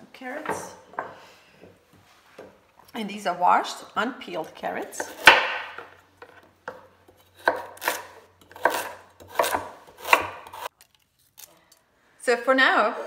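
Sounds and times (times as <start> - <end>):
knife slicing carrots on board: 5.0 - 10.7.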